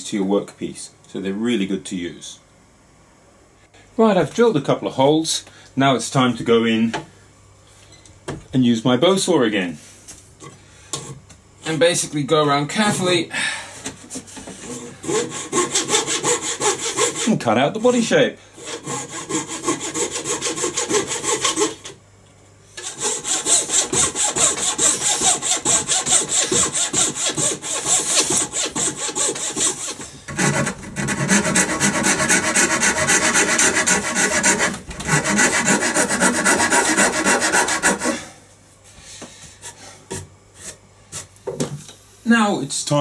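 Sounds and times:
hand saw cutting wood: 14.6 - 17.4, 18.6 - 22.0, 22.8 - 38.3.

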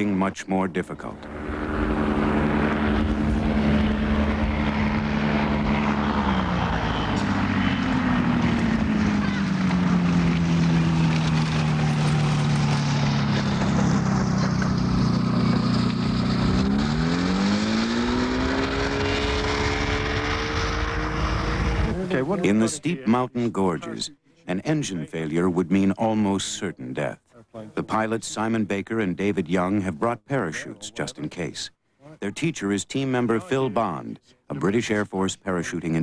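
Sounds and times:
propeller engine running: 0.8 - 22.6.

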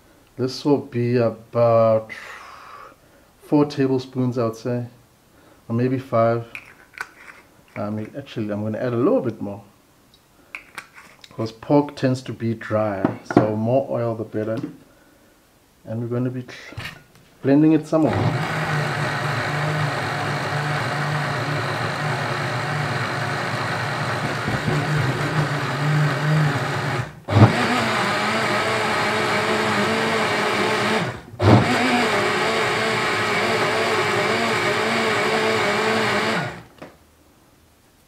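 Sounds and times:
blender running: 18.0 - 36.7.

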